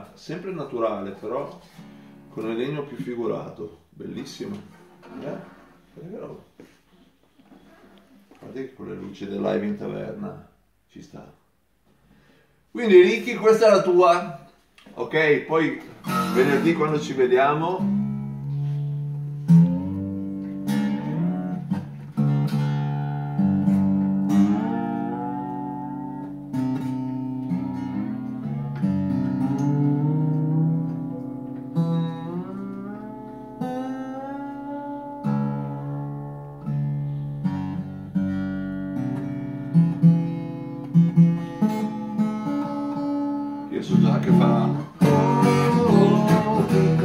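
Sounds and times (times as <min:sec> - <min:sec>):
acoustic guitar strummed and picked: 0:01.3 - 0:03.2, 0:15.9 - 0:47.0.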